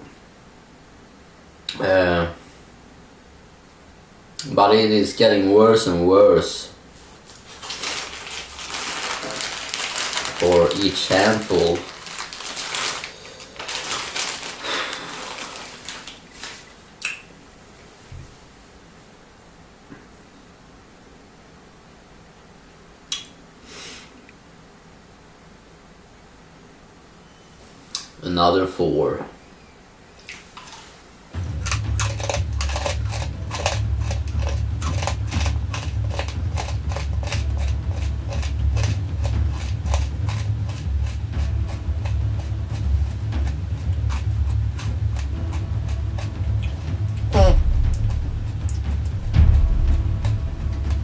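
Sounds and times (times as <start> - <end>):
steady low hum: 0.0 - 51.0
plastic bag crinkling: 7.0 - 17.0, 31.6 - 42.5
peanuts clicking together: 31.6 - 47.3.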